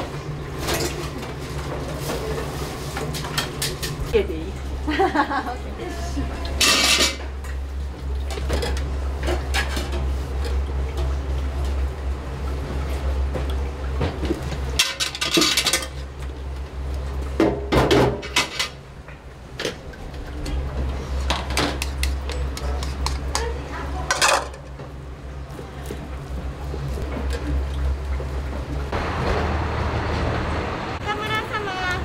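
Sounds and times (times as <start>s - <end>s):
dishes and pans clattering: 6.6s - 7.3s, 8.3s - 10.6s, 14.0s - 16.0s, 17.4s - 18.8s, 21.2s - 24.7s.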